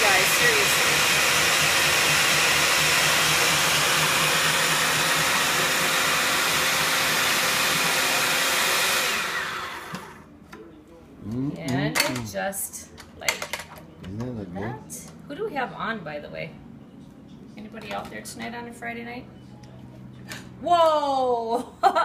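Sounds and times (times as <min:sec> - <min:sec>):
electric spiralizer motor running: 0:00.0 - 0:10.3.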